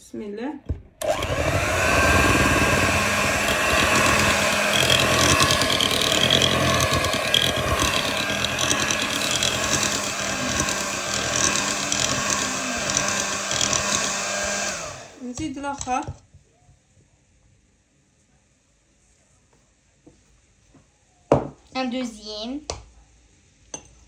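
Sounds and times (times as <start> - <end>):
electric hand mixer running: 1.0 - 16.0.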